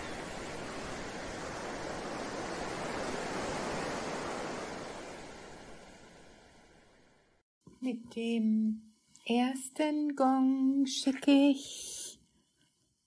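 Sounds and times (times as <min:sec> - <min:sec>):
ocean surf washing in: 0:00.0 - 0:07.4.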